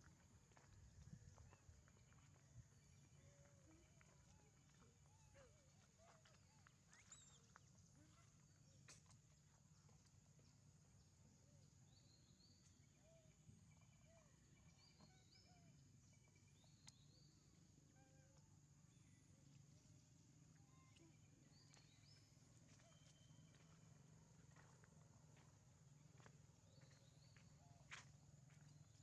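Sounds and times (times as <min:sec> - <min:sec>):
faint short chirps and calls: 0:05.3 - 0:09.1, 0:20.5 - 0:23.8.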